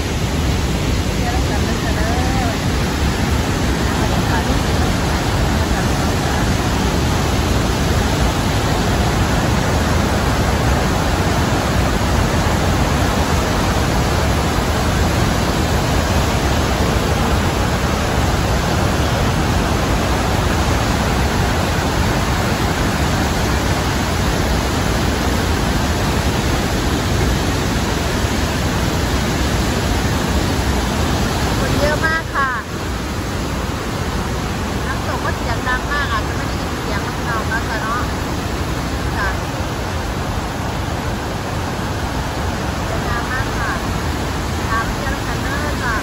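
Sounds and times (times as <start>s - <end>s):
waterfall roaring: 0.0s - 46.0s.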